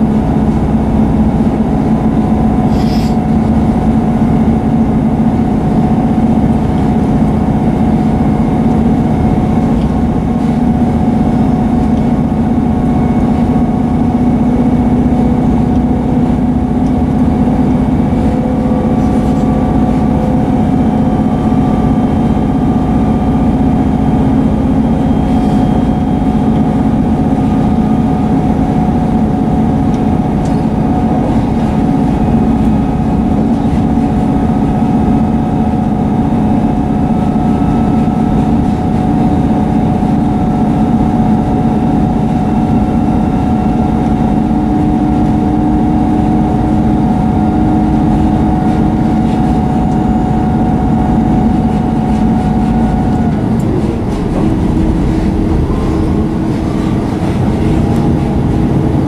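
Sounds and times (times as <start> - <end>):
diesel engine droning: 0.0 - 59.0
train running noise: 0.0 - 59.0.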